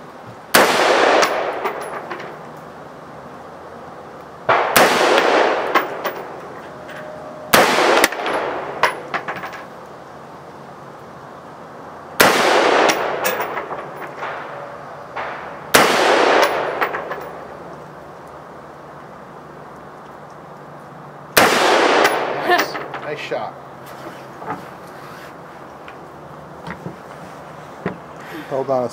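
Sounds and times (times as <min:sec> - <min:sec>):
rifle shots echoing: 0:00.5 - 0:02.0, 0:04.5 - 0:06.4, 0:07.5 - 0:09.1, 0:12.2 - 0:17.6, 0:21.4 - 0:23.0.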